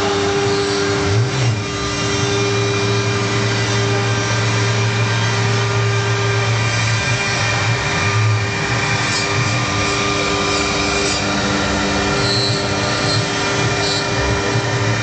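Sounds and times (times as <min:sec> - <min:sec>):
router spindle motor whine: 0:00.0 - 0:15.0
bit rasping into wood: 0:08.2 - 0:14.4.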